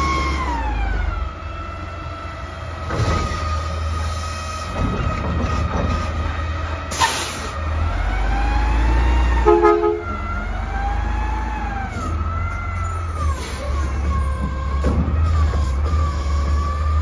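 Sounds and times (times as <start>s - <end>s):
truck engine rumble: 0.0s - 17.0s.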